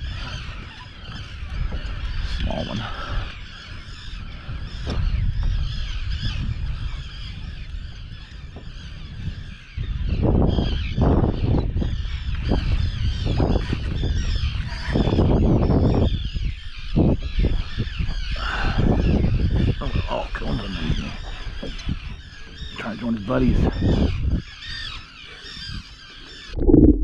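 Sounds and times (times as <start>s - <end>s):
birds honking: 0.0s - 26.6s
low rushing noise: 26.5s - 27.0s.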